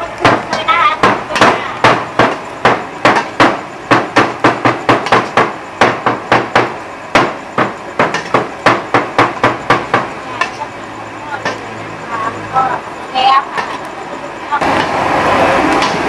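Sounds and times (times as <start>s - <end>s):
wooden pestle pounding on wood: 0.2s - 10.6s.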